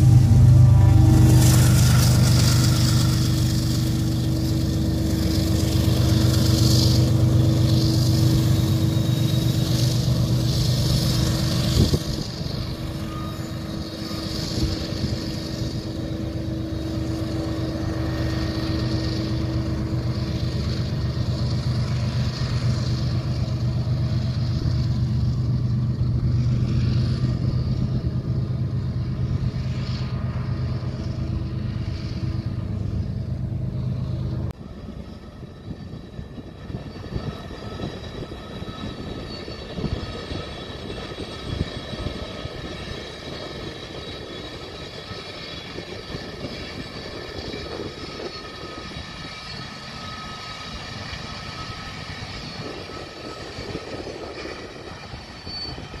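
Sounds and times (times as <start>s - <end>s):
diesel locomotive engine drone: 0.0s - 56.0s
train wheels rumbling on rail: 0.0s - 56.0s.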